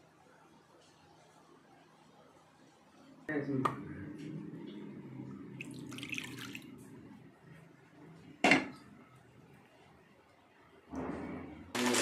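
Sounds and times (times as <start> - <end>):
milk pouring into metal bowl: 5.6 - 6.8.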